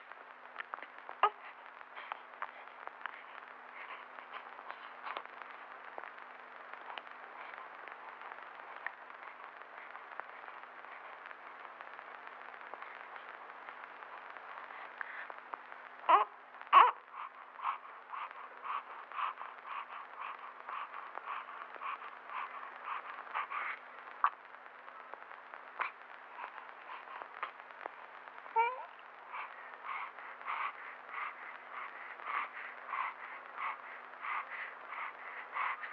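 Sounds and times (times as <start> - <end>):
film soundtrack hiss: 0.0 - 35.9
baby whimpering: 1.2 - 1.6, 16.1 - 20.4, 28.5 - 35.9
baby crying: 16.1 - 17.0, 28.6 - 29.0.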